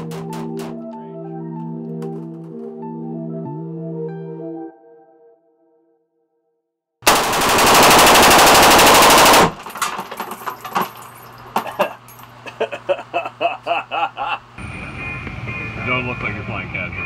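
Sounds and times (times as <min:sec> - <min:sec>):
rifle firing full-auto burst: 0:07.0 - 0:09.6.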